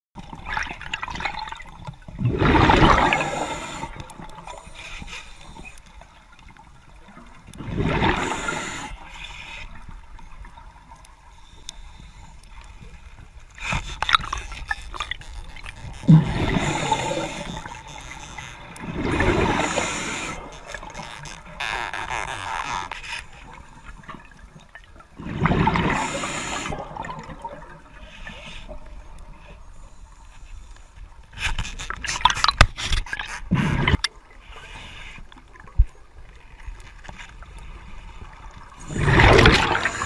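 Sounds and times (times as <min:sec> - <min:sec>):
exhaled bubbles from regulator: 0:00.5 - 0:04.7, 0:07.6 - 0:09.0, 0:15.9 - 0:17.9, 0:18.8 - 0:21.7, 0:25.2 - 0:28.0, 0:38.7 - 0:40.0.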